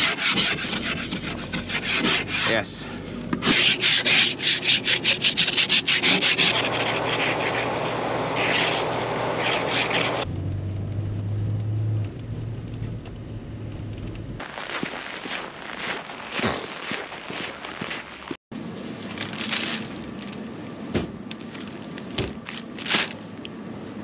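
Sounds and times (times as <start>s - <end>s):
ice scraper scraping windshield: 0.0s - 2.6s, 3.4s - 10.3s
car driving drone from inside: 7.2s - 14.4s.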